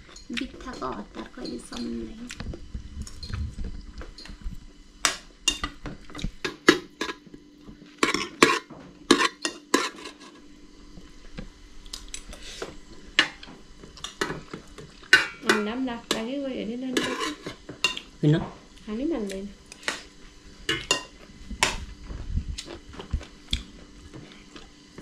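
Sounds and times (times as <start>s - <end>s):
metal utensils clinking on dishes: 14.0s - 16.2s.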